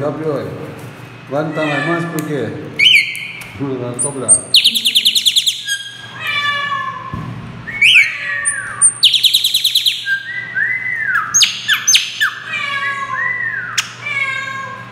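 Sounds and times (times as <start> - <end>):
blackbird singing: 2.8 - 3.4, 4.0 - 6.0, 7.7 - 12.5.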